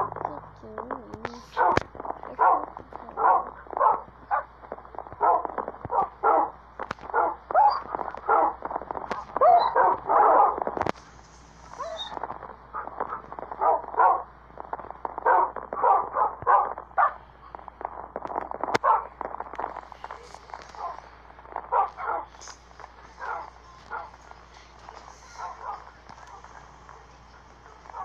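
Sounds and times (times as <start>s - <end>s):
dog barking: 1.5s - 4.5s, 5.2s - 10.7s, 11.7s - 14.3s, 15.2s - 17.2s, 18.8s - 19.1s, 20.8s - 21.0s, 21.6s - 22.4s, 23.2s - 24.2s, 25.3s - 26.4s, 27.6s - 28.0s.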